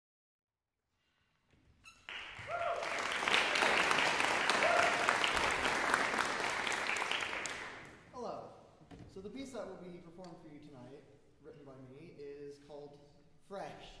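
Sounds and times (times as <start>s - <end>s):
audience applauding: 2.1s - 8.0s
crowd calling out: 4.3s - 5.4s.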